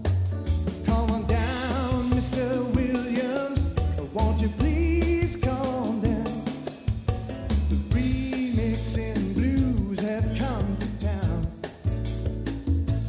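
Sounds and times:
person singing with band: 0:00.8 - 0:06.7, 0:07.9 - 0:11.6.

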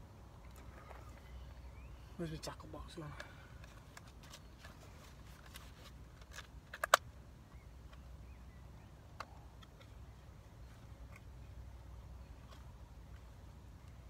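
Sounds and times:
small tackle clicks: 0:05.4 - 0:07.1.

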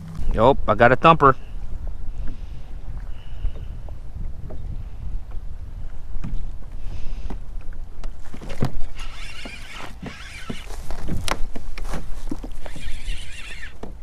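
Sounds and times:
wind on microphone: 0:00.0 - 0:14.0
fishing reel whirring: 0:08.8 - 0:10.7, 0:12.6 - 0:13.8.

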